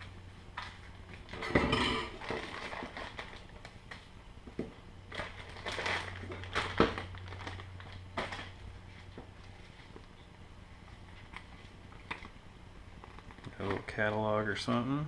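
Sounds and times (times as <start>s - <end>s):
plastic bag crinkling: 0.5s - 4.0s, 5.1s - 10.1s, 11.1s - 14.1s.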